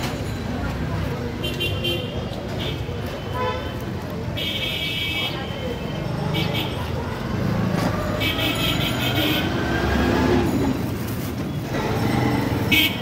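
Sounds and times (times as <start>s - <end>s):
busy street traffic: 0.0s - 13.0s
vehicle running close by: 7.0s - 10.9s.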